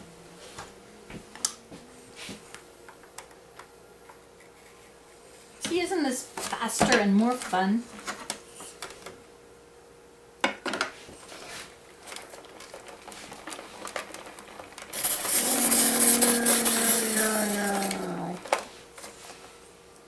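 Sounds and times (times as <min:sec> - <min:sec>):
apple peeler grinding and whirring: 0:12.3 - 0:18.6.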